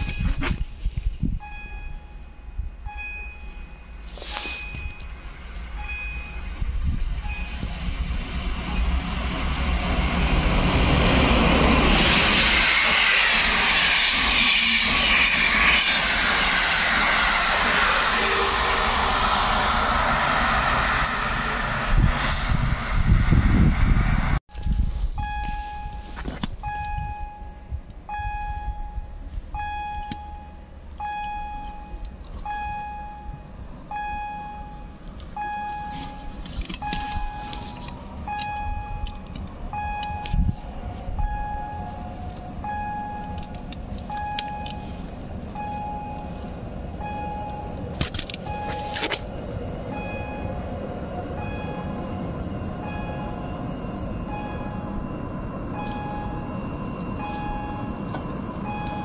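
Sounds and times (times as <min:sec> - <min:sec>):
electronic warning beeps: 0:00.0 - 0:00.4, 0:01.3 - 0:07.9, 0:24.6 - 0:40.6, 0:41.2 - 0:49.1, 0:49.9 - 0:59.0
electric train rumbling: 0:00.0 - 0:59.0.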